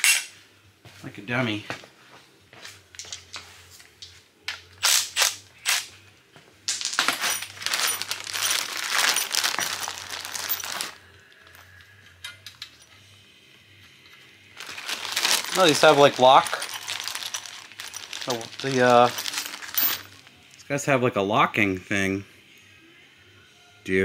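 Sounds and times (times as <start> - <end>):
metallic clicks and clinks: 6.7 - 13.1, 13.8 - 20.2
plastic bag crinkling: 6.8 - 11.0, 14.6 - 20.3.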